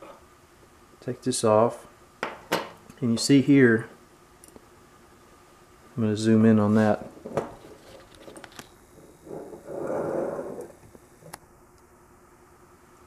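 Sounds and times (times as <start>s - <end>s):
soft noisy rush: 2.9s - 12.0s.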